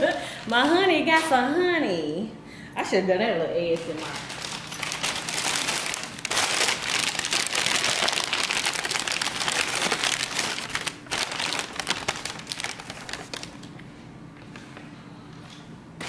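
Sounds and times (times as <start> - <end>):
packing paper crinkling: 0.0 - 0.8, 3.7 - 13.9.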